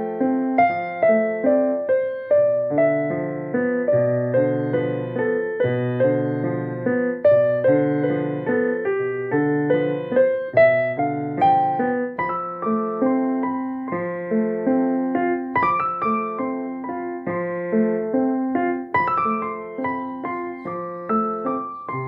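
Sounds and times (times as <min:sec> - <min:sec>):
gentle piano melody: 0:00.0 - 0:22.0.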